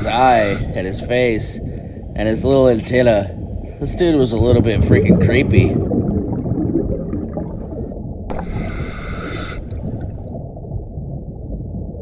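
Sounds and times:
diver breathing through regulator: 0:00.0 - 0:00.8, 0:08.3 - 0:10.1
low underwater rumble: 0:00.0 - 0:12.0.

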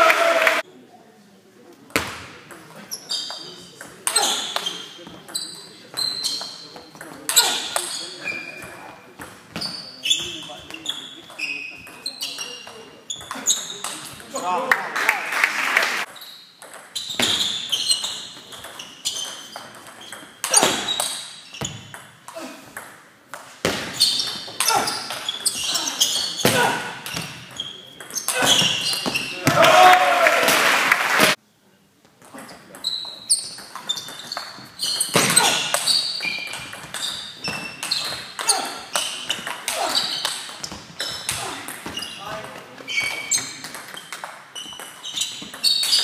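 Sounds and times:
applause: 0:00.0 - 0:00.6, 0:14.7 - 0:16.0, 0:30.1 - 0:31.4
crowd voices: 0:00.0 - 0:01.8
crowd noise: 0:00.0 - 0:16.1, 0:24.5 - 0:32.3
shoes squeaking on floor: 0:02.8 - 0:14.4, 0:16.0 - 0:22.5, 0:23.6 - 0:29.6, 0:32.3 - 0:46.0.

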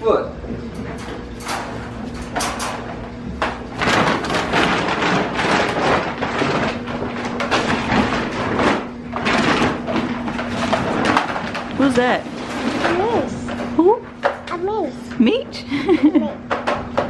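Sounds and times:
wire dog crate rattling: 0:00.7 - 0:13.7.

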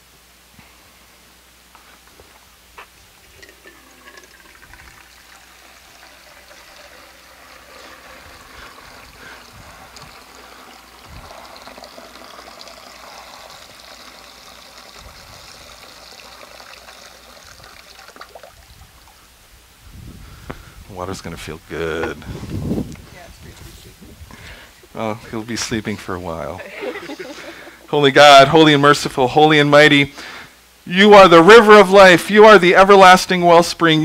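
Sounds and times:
water pouring into glass bowl: 0:03.2 - 0:19.2.

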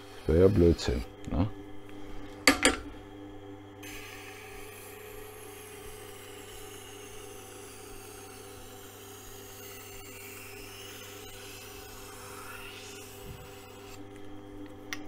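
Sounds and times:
knife hissing on grinding wheel: 0:00.0 - 0:01.1, 0:03.8 - 0:14.0
sharpening machine motor hum: 0:03.7 - 0:15.0.

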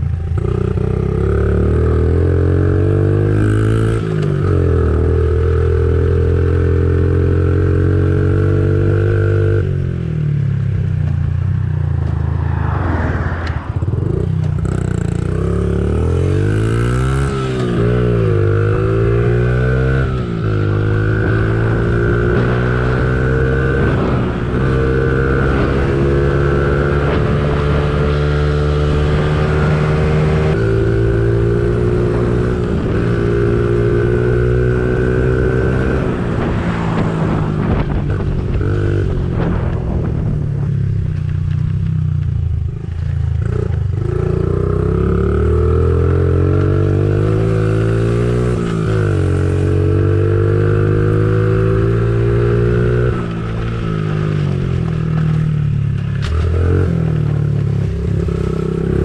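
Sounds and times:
pit bike engine revving: 0:12.0 - 0:40.3.

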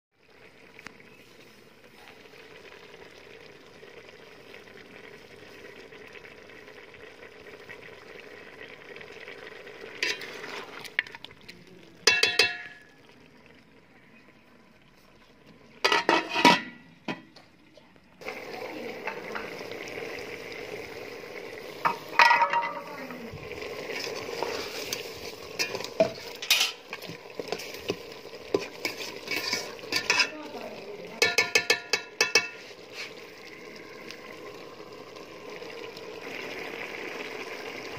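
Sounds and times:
meat sizzling in a pot: 0:00.2 - 0:17.0, 0:18.2 - 0:37.9
utensils scraping a pot: 0:10.0 - 0:11.2, 0:15.8 - 0:16.8, 0:23.8 - 0:30.5, 0:31.2 - 0:33.3
metal plate knocking on pot: 0:12.0 - 0:12.8, 0:21.8 - 0:22.8, 0:31.2 - 0:32.6.

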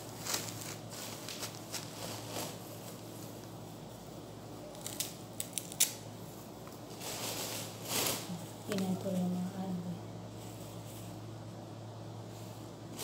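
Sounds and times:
rustle of leafy stems: 0:00.0 - 0:03.4, 0:06.9 - 0:09.5.

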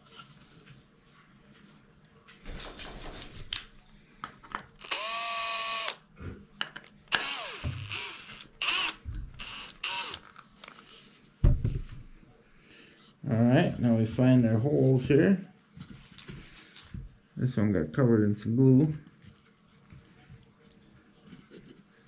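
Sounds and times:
cordless drill driving a screw: 0:04.8 - 0:06.0, 0:07.1 - 0:10.2
wooden thump: 0:11.4 - 0:12.0.

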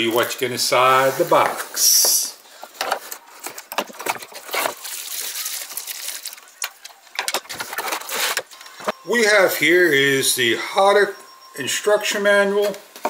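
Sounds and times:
plastic bag and foam crinkling: 0:02.8 - 0:06.9, 0:07.5 - 0:08.5.

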